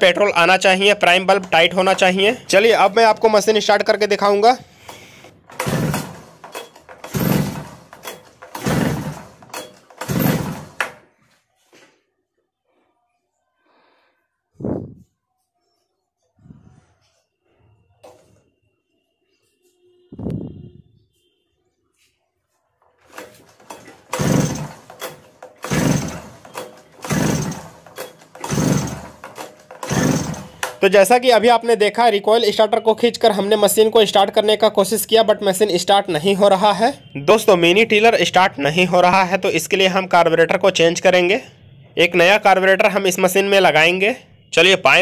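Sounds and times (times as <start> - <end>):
engine cranking without firing: 4.7 - 11.0, 23.0 - 31.1
recoil starter rope whirring: 4.9 - 10.9, 23.1 - 30.8.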